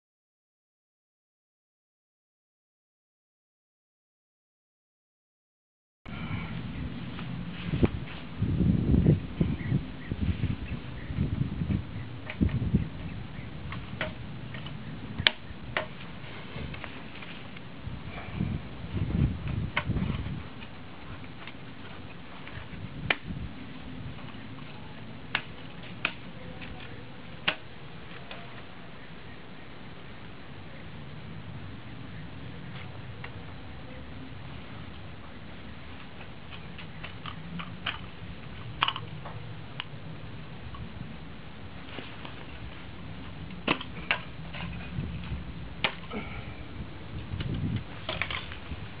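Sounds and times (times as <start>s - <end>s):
low steady rumble: 6.1s - 49.0s
quadcopter frame folding clicks: 47.2s - 48.6s.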